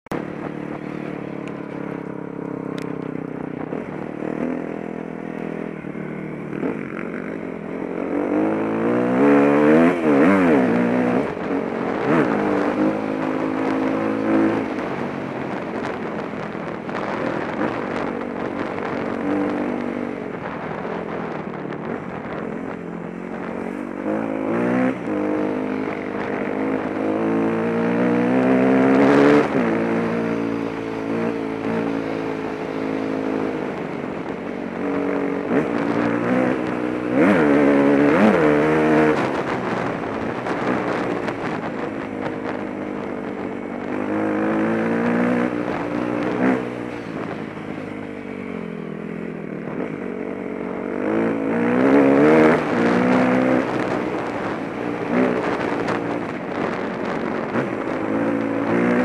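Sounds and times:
dirt bike engine revving: 8.0 - 14.7, 50.9 - 53.9.

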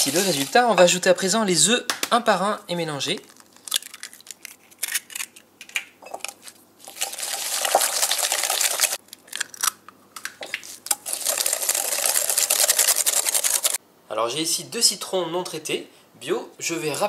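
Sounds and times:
whisk rattling against glass bowl: 11.2 - 13.8.

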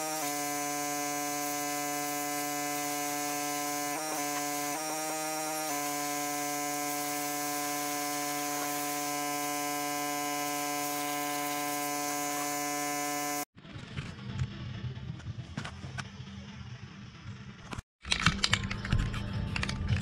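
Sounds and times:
pressure washer spraying: 0.0 - 13.5.

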